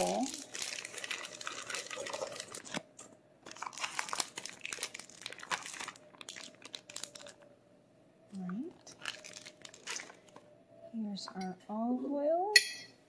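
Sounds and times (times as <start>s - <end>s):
plastic packaging crinkling: 0.0s - 7.5s, 8.4s - 10.4s.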